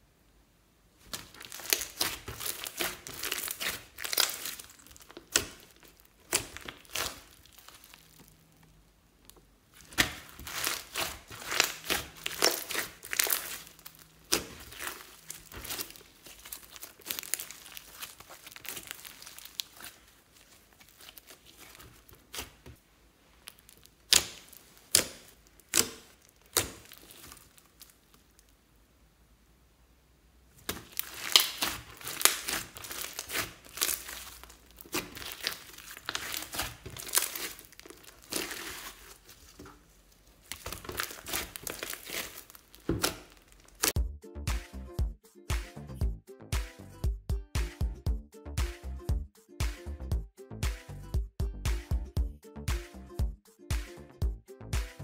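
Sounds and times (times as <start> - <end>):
slime clicking and popping: 1.1 - 8.4, 9.3 - 22.7, 23.4 - 28.5, 30.6 - 39.7, 40.4 - 44.0.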